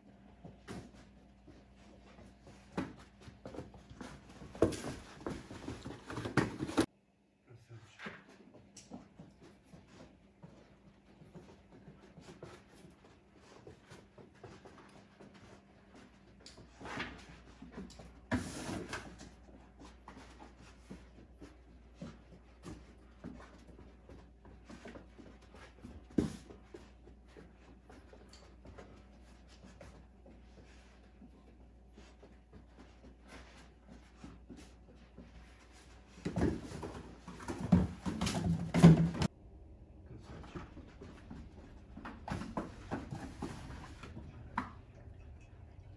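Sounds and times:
cardboard boxes bumping and scuffling: 36.2 - 39.3.

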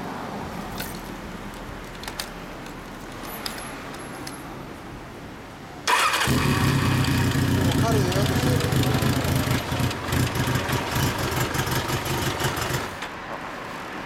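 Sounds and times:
small clicks and jingles: 0.7 - 4.5
motorcycle engine starting and running: 5.9 - 13.1.

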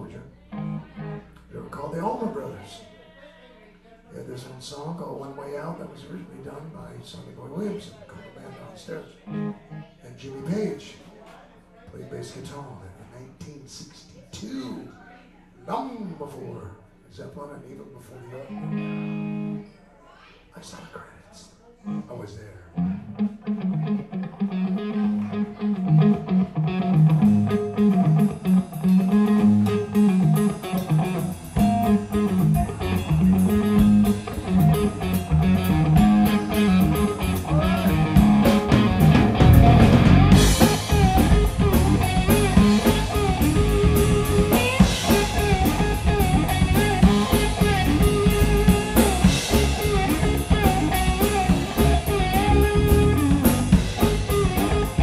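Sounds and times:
blues-rock band playing live: 0.5 - 1.2, 9.3 - 9.8, 18.6 - 19.6, 23.0 - 55.0
electric guitar riff: 0.5 - 1.4, 9.3 - 9.9, 18.5 - 19.6, 21.9 - 22.2, 22.8 - 55.0.

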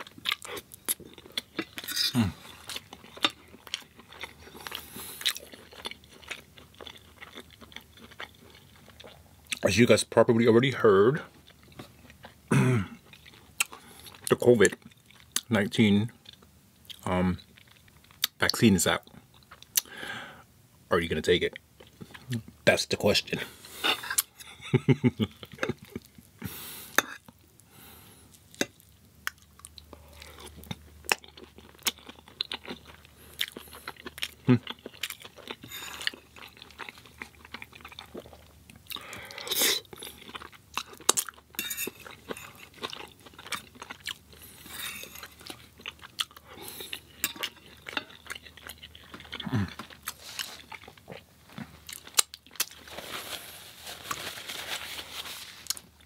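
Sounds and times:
person chewing crunchy food: 0.0 - 9.6, 11.3 - 15.5, 28.2 - 56.0.

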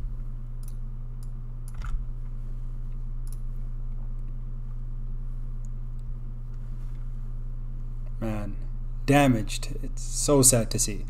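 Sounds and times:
low electrical hum: 0.0 - 11.0
computer mouse click: 0.6 - 2.0, 3.2 - 3.4.

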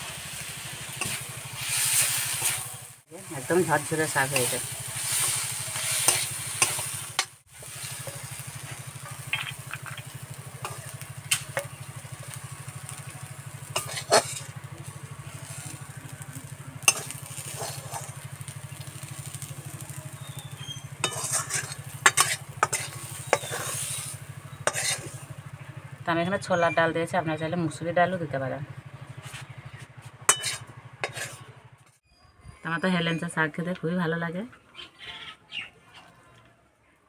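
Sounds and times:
light sizzle from pan: 0.0 - 26.5
spatula scraping metal wok: 0.1 - 20.0, 20.6 - 25.6, 29.1 - 31.6.

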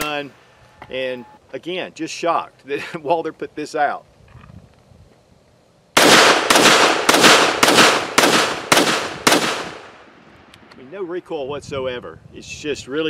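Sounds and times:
pistol shots: 6.0 - 10.1.

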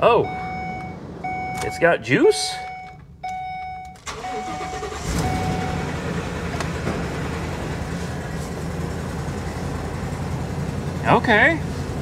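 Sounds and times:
dashboard warning chime: 0.0 - 6.0
truck engine starting and idling: 0.0 - 12.0.

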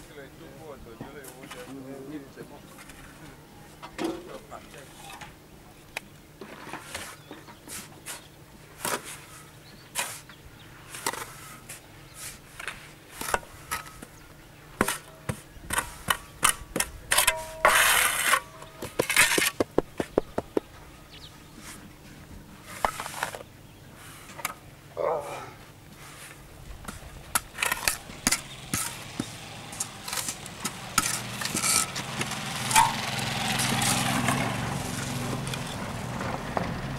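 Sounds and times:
shovels scraping sand mix: 6.4 - 14.2, 14.8 - 19.7, 21.4 - 22.0, 22.6 - 35.8.

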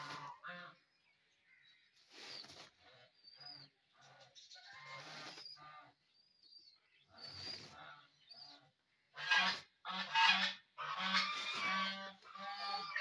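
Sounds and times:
geese honking: 0.0 - 0.8, 9.2 - 13.0.

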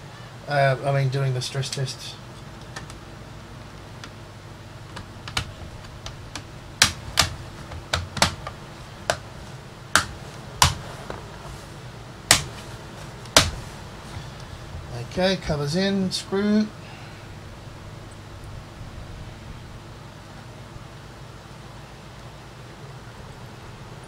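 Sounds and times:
plastic clips snapping into place: 4.9 - 9.2, 10.0 - 11.2, 12.3 - 12.6.

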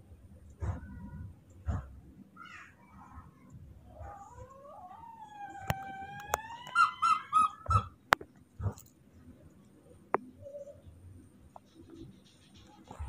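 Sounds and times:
baby monkey crying: 3.9 - 8.0.

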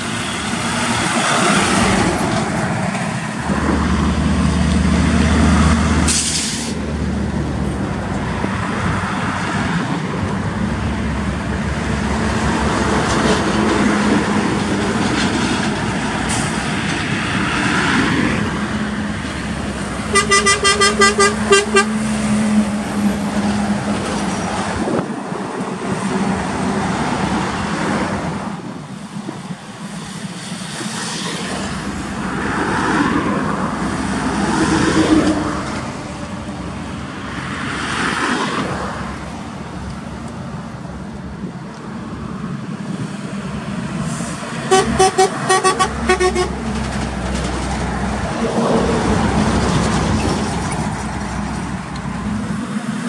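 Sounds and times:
heavy trucks passing: 0.0 - 53.0
truck horn short blasts: 20.1 - 22.0, 44.7 - 46.5.

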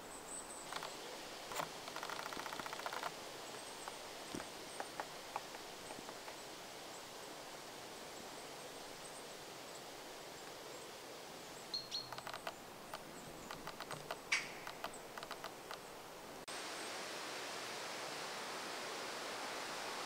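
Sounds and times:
outdoor air hiss: 0.0 - 20.0
woodpecker tapping: 0.7 - 6.4, 11.7 - 15.9.

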